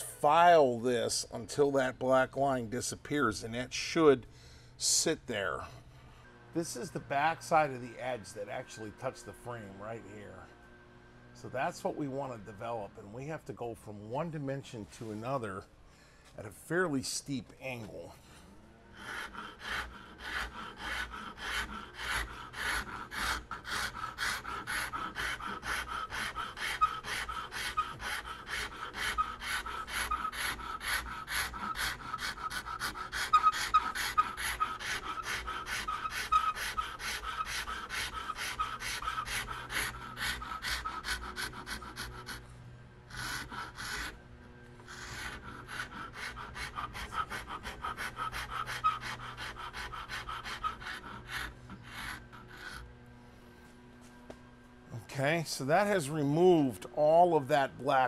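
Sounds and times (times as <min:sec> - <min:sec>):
file rasping on wood: 0:18.9 - 0:42.5, 0:43.1 - 0:44.2, 0:44.8 - 0:52.8.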